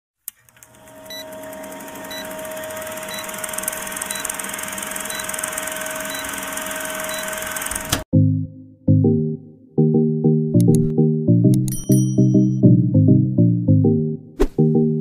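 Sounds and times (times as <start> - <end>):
film projector rattling whir: 0.4 - 8.0.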